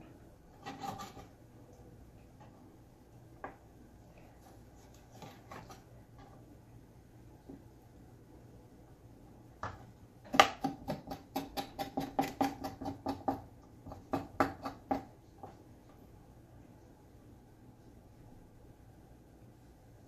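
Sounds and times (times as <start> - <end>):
knife tapping cutting board: 9.6 - 15.5.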